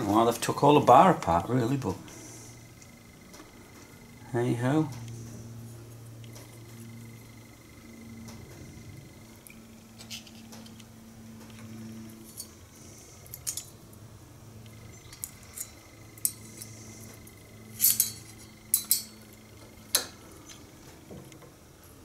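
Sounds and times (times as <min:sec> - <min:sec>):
faint steady hum: 0:00.0 - 0:22.0
metal blades clinking and rattling: 0:12.2 - 0:12.6, 0:13.2 - 0:13.8, 0:15.0 - 0:20.2.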